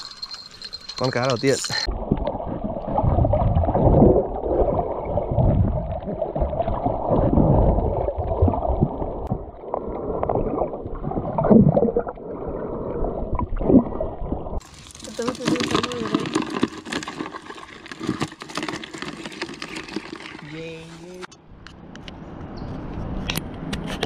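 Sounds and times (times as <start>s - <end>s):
muffled water sloshing underwater: 1.8s - 15.0s.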